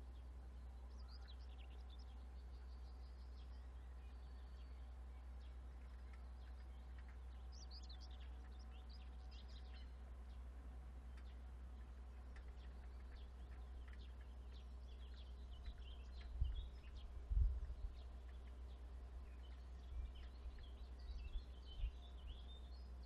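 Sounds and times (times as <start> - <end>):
steady low hum: 0.0 - 23.0
birds chirping and trilling: 0.1 - 23.0.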